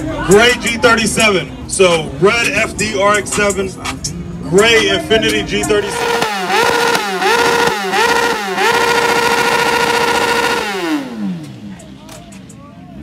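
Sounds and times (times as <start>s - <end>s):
motorcycle engine revving: 5.7s - 12.6s.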